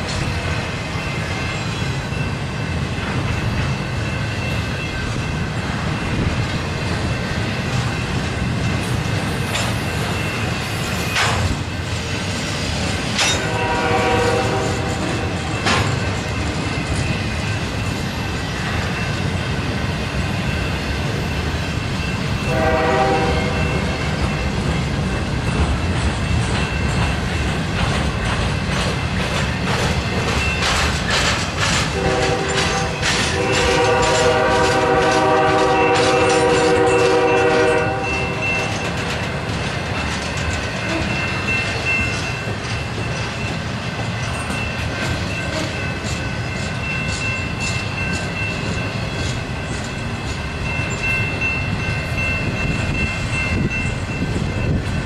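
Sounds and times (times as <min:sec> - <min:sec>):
freight train wheels rumbling: 0:00.0 - 0:55.0
train cars clanking: 0:00.0 - 0:55.0
locomotive horn: 0:13.4 - 0:15.5, 0:22.4 - 0:24.0, 0:31.9 - 0:38.9.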